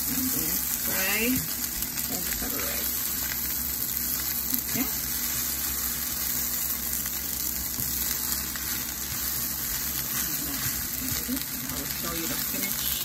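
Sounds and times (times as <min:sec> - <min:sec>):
rice sizzling in a pan: 0:00.0 - 0:13.0
wooden spoon stirring: 0:07.5 - 0:13.0.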